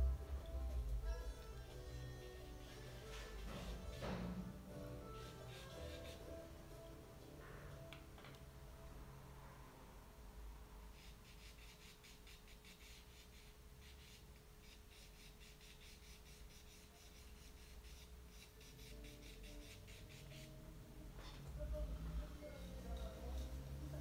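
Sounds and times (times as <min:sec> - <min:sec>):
pencil scratching on paper: 0:05.1 - 0:06.4, 0:11.0 - 0:20.6.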